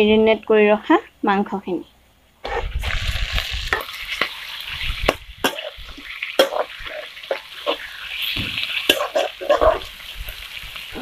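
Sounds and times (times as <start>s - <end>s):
meat sizzling in hot oil: 2.5s - 11.0s
metal spatula scraping pan: 3.7s - 9.9s.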